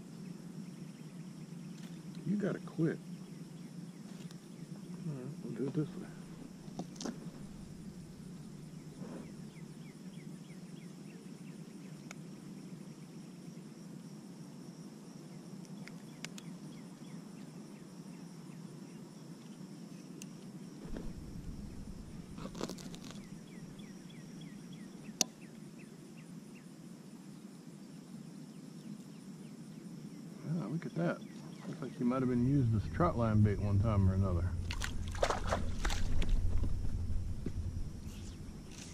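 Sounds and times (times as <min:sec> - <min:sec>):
faint high insect chirring: 0:00.0 - 0:38.9
low background hiss: 0:00.0 - 0:38.9.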